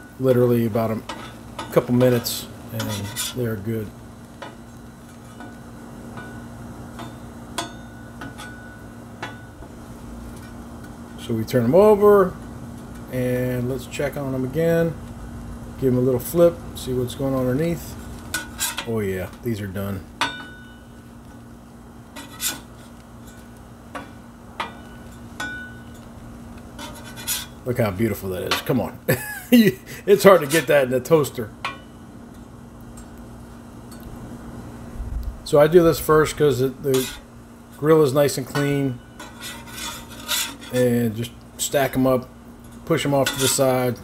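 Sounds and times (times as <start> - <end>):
steady low hum: 0.0 - 44.0
metal spatula scraping griddle: 0.6 - 3.7, 17.8 - 19.2, 22.1 - 26.0, 26.7 - 27.6, 36.2 - 37.3, 38.1 - 41.0, 42.6 - 43.8.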